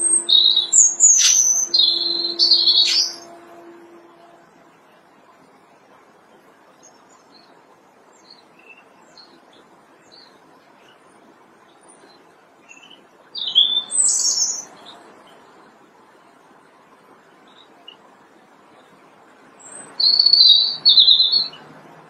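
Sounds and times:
robin singing: 0.0s - 4.9s, 11.7s - 15.5s, 19.6s - 21.7s.

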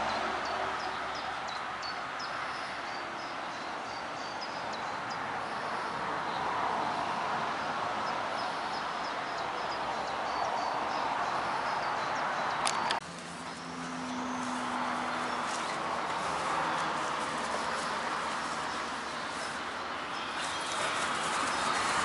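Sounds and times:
steady rushing noise: 13.1s - 22.0s.

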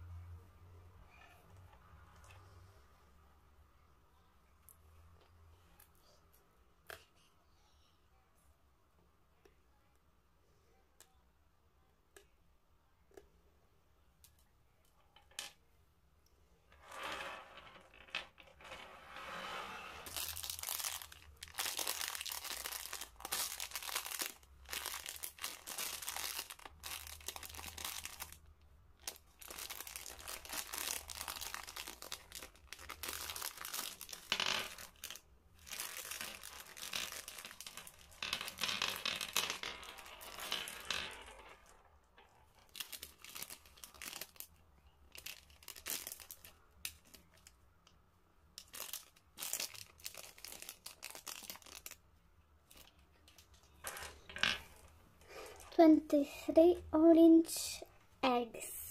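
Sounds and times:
plastic bag crinkling: 20.0s - 38.6s, 42.7s - 47.5s, 48.6s - 52.0s.

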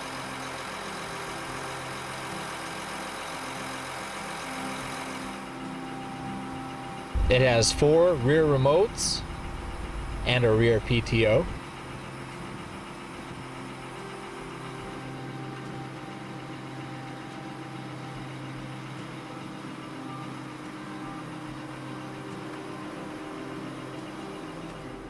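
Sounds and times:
diesel engine idling: 0.1s - 25.0s.

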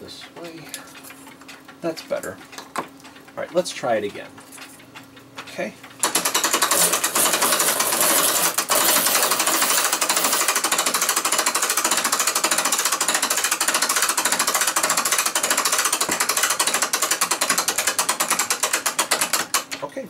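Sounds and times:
ratchet clicking rapidly: 6.0s - 19.8s.

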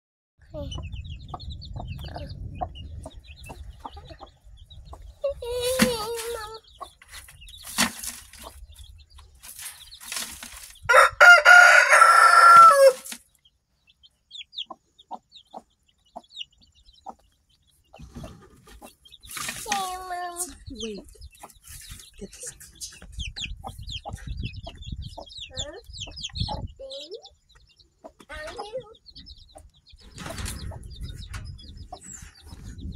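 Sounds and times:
chicks peeping: 0.4s - 32.9s
hen clucking: 0.6s - 32.9s
chicken loud drawn-out call: 10.9s - 13.1s.

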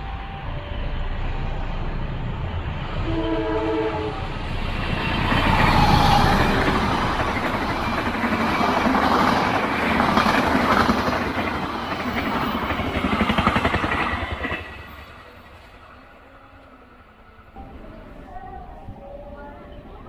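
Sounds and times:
train horn: 0.0s - 1.6s, 3.0s - 4.4s
train rumbling past: 0.0s - 20.0s.

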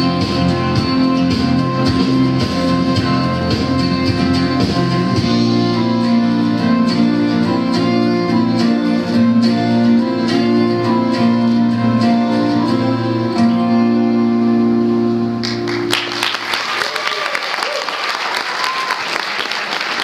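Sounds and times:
bowed string notes: 0.0s - 15.5s
plucked guitar: 0.0s - 16.3s.

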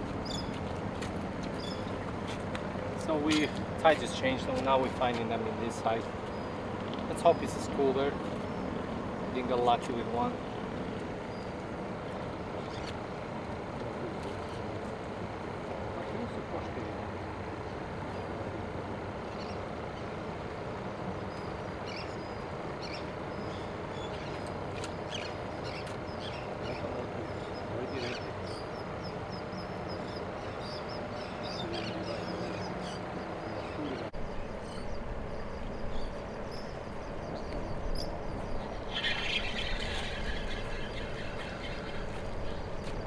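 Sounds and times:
traffic rumble: 0.0s - 43.0s
high bird chirps: 35.8s - 42.9s.

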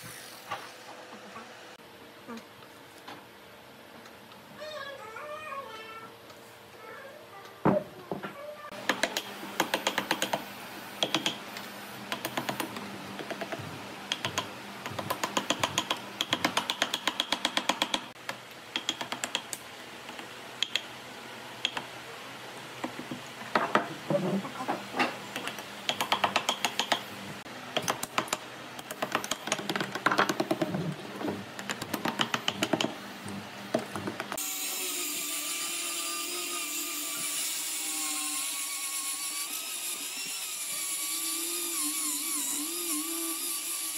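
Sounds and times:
angle grinder sanding whir: 34.4s - 43.9s.

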